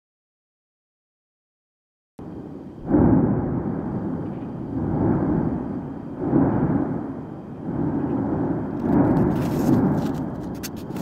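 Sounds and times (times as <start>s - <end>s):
volcano deep rumble: 2.2s - 11.0s.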